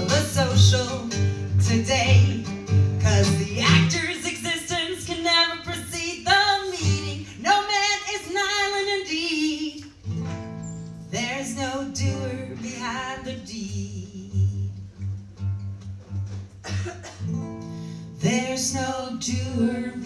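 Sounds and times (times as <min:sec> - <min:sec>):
woman singing: 0:00.0 - 0:10.0, 0:11.1 - 0:15.0, 0:18.2 - 0:20.0
strummed acoustic guitar: 0:00.0 - 0:20.0.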